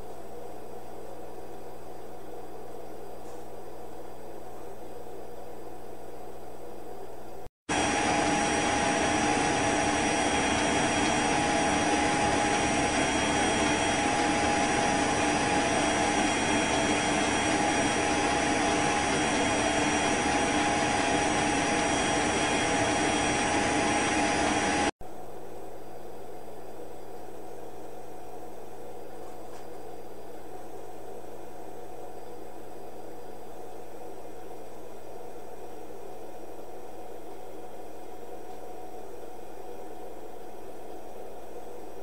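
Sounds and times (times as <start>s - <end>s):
mechanical whirring: 7.7s - 24.9s.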